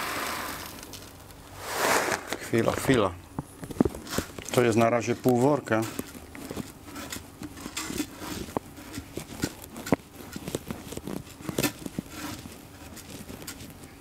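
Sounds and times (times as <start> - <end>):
soil pellets pattering on glass: 0.1 - 1.5.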